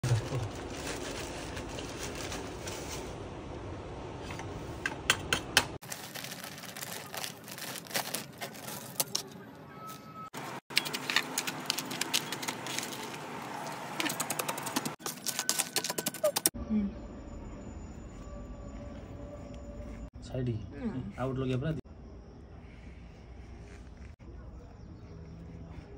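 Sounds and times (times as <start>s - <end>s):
plastic bag rustling: 0.0s - 3.3s, 5.8s - 9.4s, 10.4s - 16.5s.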